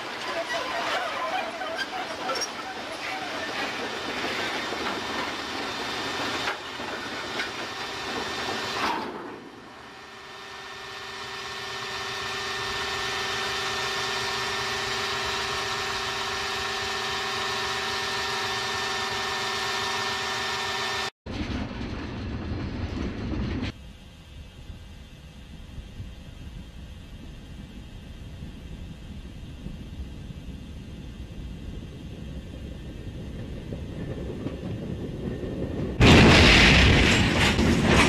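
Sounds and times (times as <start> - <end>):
engine drone with held tones: 0.0 - 21.2
railcars grinding and scraping: 0.0 - 23.8, 32.7 - 38.0.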